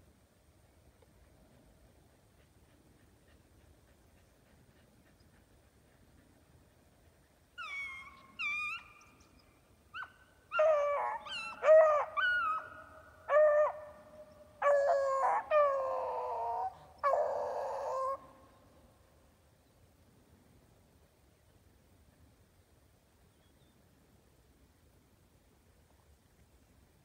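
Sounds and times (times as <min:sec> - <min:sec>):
high-pitched animal calls: 0:07.6 - 0:09.2.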